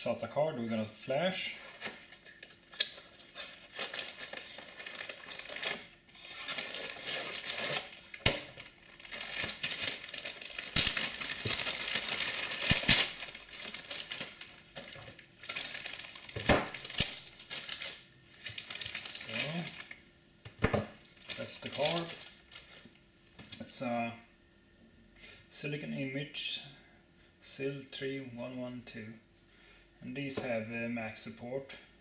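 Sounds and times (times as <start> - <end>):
plastic packaging crinkling: 1.6 - 20.0, 21.0 - 23.0.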